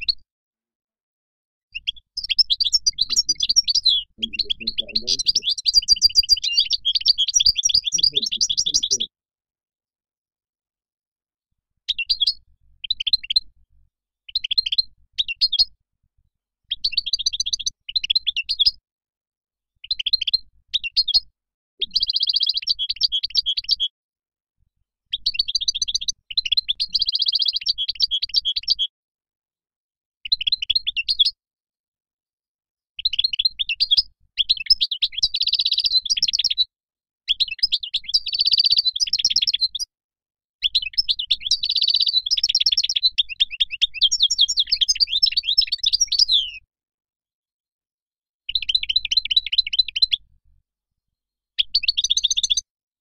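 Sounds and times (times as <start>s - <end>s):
goldfinch twittering song: 1.7s - 9.1s, 11.9s - 13.5s, 14.3s - 15.7s, 16.6s - 18.8s, 19.8s - 23.9s, 25.1s - 28.9s, 30.3s - 31.4s, 33.0s - 36.7s, 37.3s - 39.9s, 40.6s - 46.7s, 48.5s - 50.2s, 51.6s - 52.6s.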